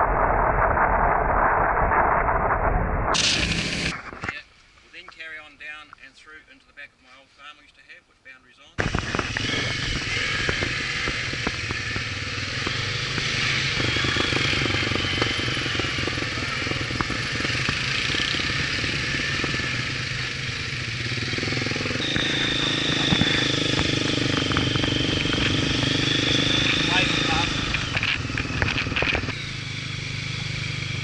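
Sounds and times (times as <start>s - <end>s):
steady high whine: 0.0s - 6.9s, 8.8s - 31.0s
quad bike engines running: 8.8s - 31.0s.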